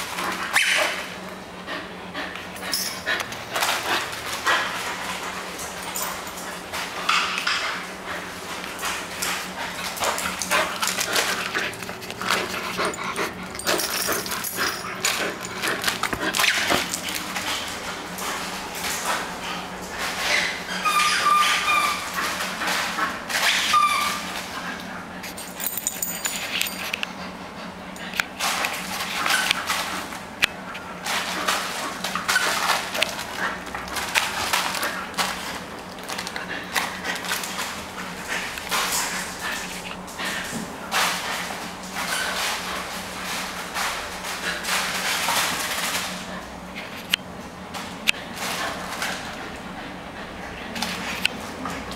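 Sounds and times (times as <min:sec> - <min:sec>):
dog breathing and snuffling: 0:07.6 - 0:20.6
dog claws clicking on tiles: 0:08.6 - 0:18.2, 0:28.0 - 0:42.8.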